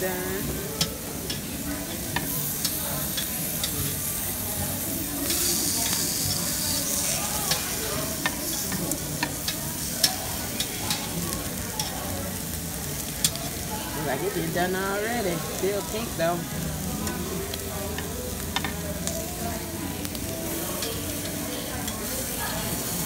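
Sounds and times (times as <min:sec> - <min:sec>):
meat sizzling on a grill: 0:00.0 - 0:23.0
metal tongs clicking on grate: 0:00.7 - 0:04.0, 0:07.5 - 0:11.1, 0:11.8 - 0:12.0, 0:13.2 - 0:13.5, 0:17.0 - 0:19.2, 0:20.8 - 0:22.1.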